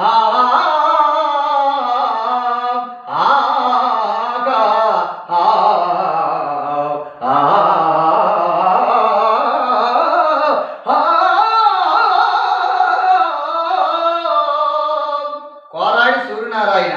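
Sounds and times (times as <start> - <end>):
man singing unaccompanied: 0.0 - 16.9
breath: 10.6 - 10.9.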